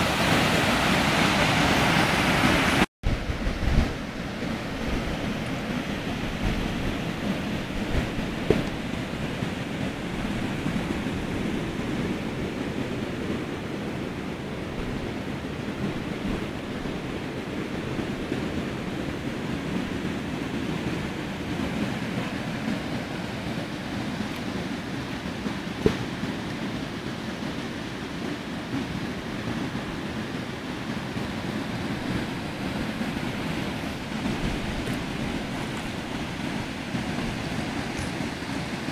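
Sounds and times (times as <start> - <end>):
river rushing through a weir: 0.0 - 38.9.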